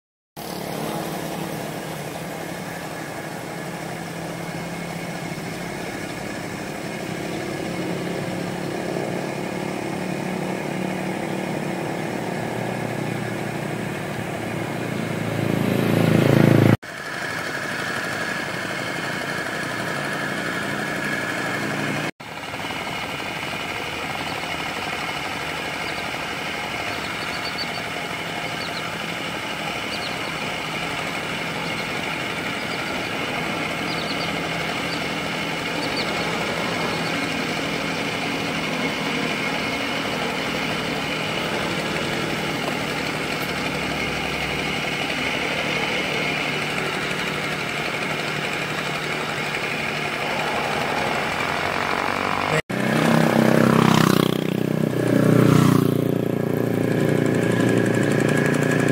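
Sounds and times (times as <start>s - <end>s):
hand tractor engine running: 16.9s - 52.6s, 55.3s - 58.9s.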